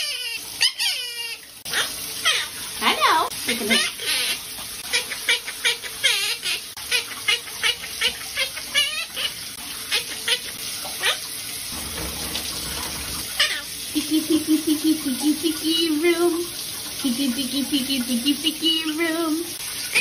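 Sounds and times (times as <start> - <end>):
parakeet squawking and chirping: 0.0 - 11.3, 13.2 - 13.8
running shower hiss: 0.0 - 20.0.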